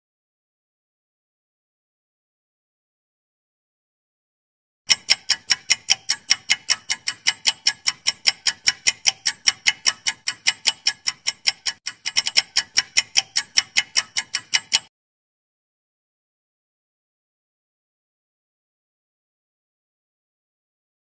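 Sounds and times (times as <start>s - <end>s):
countdown timer ticking: 4.9s - 14.9s.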